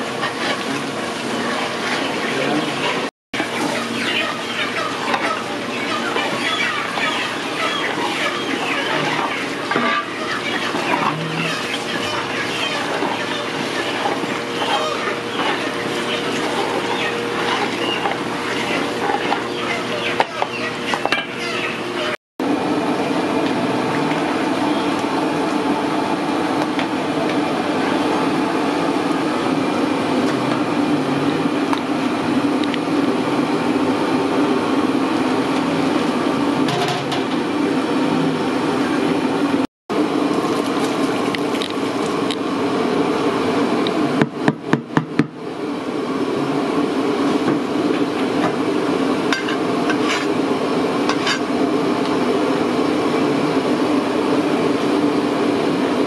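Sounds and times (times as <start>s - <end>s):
gas burner roaring: 0.0s - 56.0s
stock boiling in a pot: 0.0s - 56.0s
ladle stirring in a pot: 6.1s - 19.5s, 49.2s - 50.4s, 51.1s - 51.5s.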